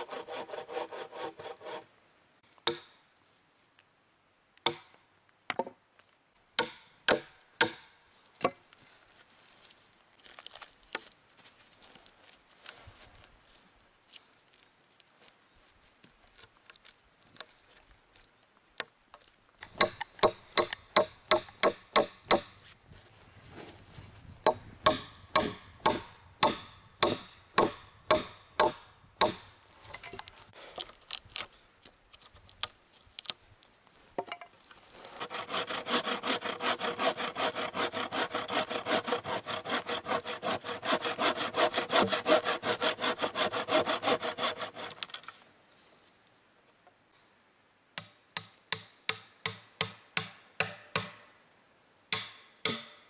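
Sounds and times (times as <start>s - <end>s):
hand saw cutting log: 0.0s - 1.9s, 24.5s - 29.5s, 34.9s - 45.3s.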